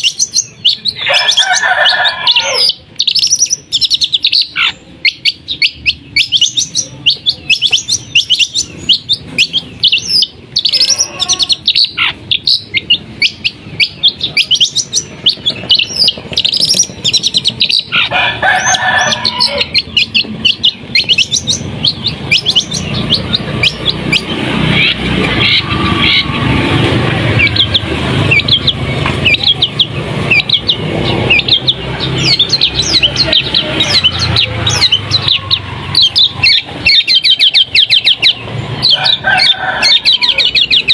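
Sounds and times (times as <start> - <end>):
bird singing sharp high chirps: 0.0 - 40.9.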